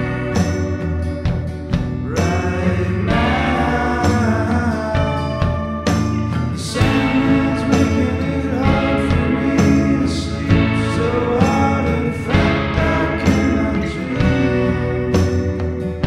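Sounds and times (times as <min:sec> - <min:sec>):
person singing: 0:00.0 - 0:01.3, 0:02.0 - 0:16.0
drums: 0:00.0 - 0:16.0
layered guitars: 0:00.0 - 0:16.0.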